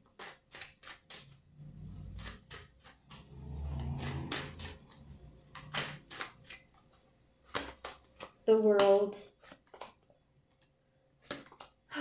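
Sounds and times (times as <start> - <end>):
cards being shuffled: 2.0 - 11.8.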